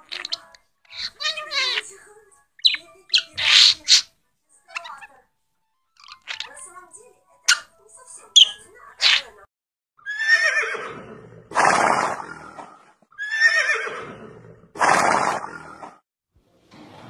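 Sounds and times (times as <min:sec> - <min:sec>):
parrot chicks squawking: 0:00.0 - 0:02.0, 0:02.6 - 0:04.1, 0:04.7 - 0:05.2, 0:06.0 - 0:06.6, 0:07.5 - 0:07.7, 0:08.4 - 0:09.4
horse whinnying: 0:10.0 - 0:12.2, 0:13.1 - 0:14.2.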